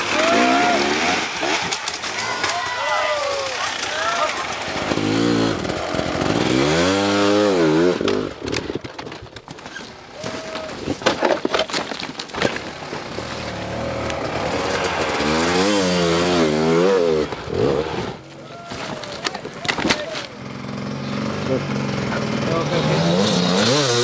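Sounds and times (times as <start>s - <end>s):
dirt bike engine revving: 0.0s - 8.9s, 12.7s - 24.0s
sharp knocks and clatters: 8.0s - 10.0s.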